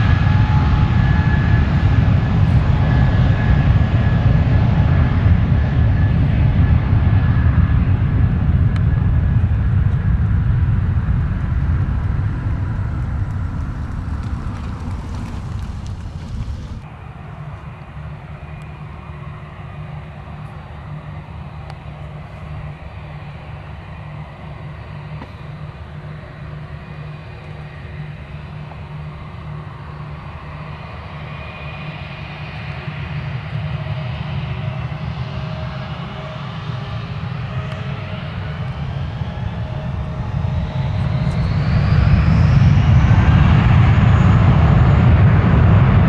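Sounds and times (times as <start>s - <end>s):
jet engines rumbling and whining: 0.0s - 46.0s.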